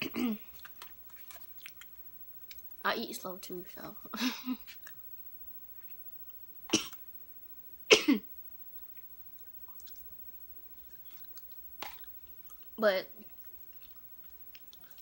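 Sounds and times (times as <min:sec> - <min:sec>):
person coughing: 0:00.0 - 0:00.5, 0:06.7 - 0:07.0, 0:07.9 - 0:08.3
chewing and mouth clicks: 0:00.4 - 0:02.8, 0:04.6 - 0:07.1, 0:08.7 - 0:15.0.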